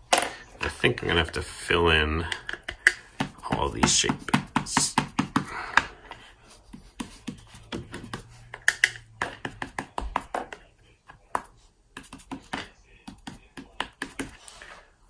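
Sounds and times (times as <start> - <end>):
fingertips tapping ink pad: 2.3 - 14.4.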